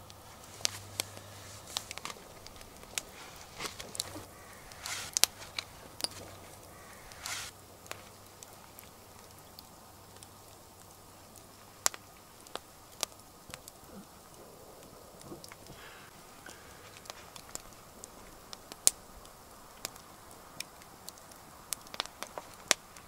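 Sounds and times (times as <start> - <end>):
fire crackling and popping: 0.0 - 23.0
short rustling noises: 0.3 - 7.5.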